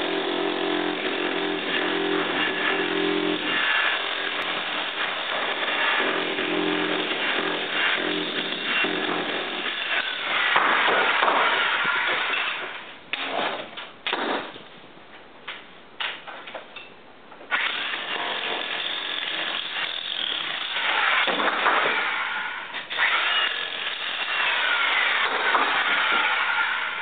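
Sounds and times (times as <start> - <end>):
jackhammer chiselling brick: 0.0 - 12.6, 17.5 - 22.3, 22.9 - 26.9.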